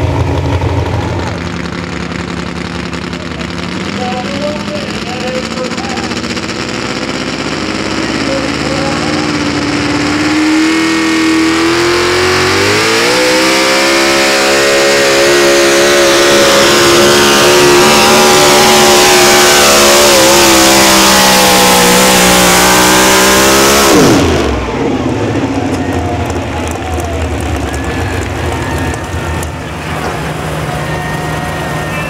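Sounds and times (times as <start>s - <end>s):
truck engine at full throttle: 0.0s - 32.0s.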